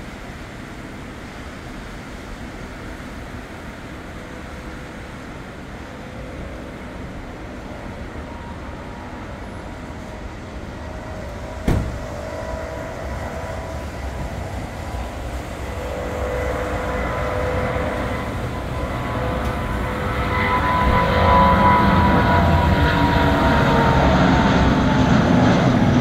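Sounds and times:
jet engine roar with whine: 0.0s - 26.0s
sharp knock: 11.6s - 12.0s.

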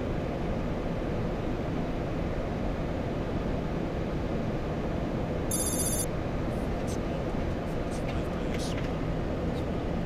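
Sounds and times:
cockpit airflow and engine hum: 0.0s - 10.0s
high electronic chime: 5.5s - 6.1s.

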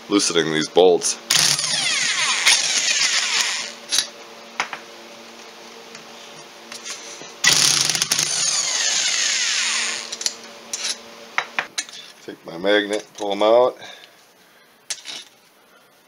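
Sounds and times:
electric drill spinning out bolts: 1.3s - 4.1s, 6.8s - 11.0s.

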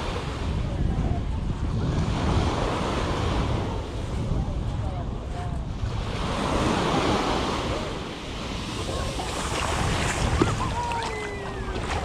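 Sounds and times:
wind buffeting microphone: 0.0s - 12.0s
small waves breaking on sand: 1.6s - 4.4s, 5.2s - 12.0s.

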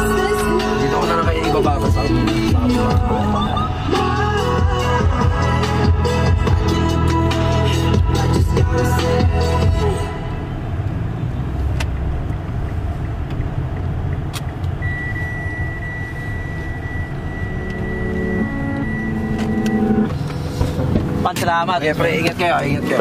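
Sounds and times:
high-pitched tone: 0.0s - 10.4s, 14.8s - 20.2s
vehicle engine rumble: 0.0s - 23.0s.

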